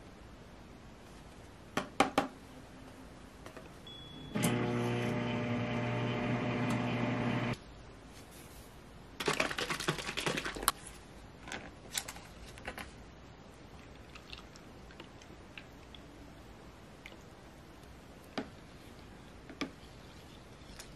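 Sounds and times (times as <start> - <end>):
microwave oven humming: 3.9 - 7.6.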